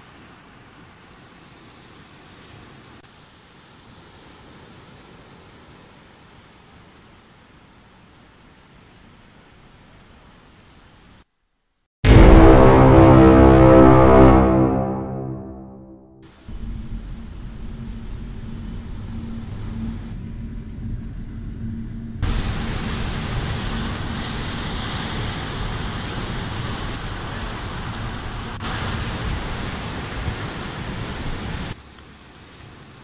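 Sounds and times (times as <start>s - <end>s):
faint steady hum: 16.3s - 28.6s.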